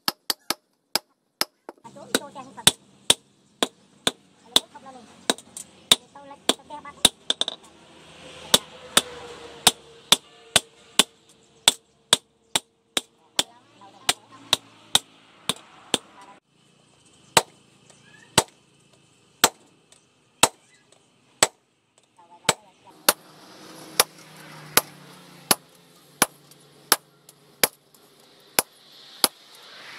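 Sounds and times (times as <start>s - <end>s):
hammer striking steel on anvil: 8.5s - 13.5s.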